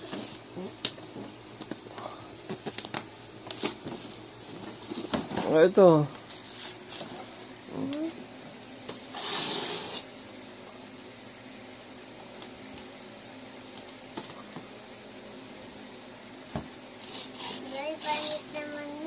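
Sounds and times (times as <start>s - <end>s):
wrapping paper tearing: 6.3s - 7.2s, 9.1s - 10.0s
faint hiss: 8.9s - 12.2s, 12.8s - 19.0s.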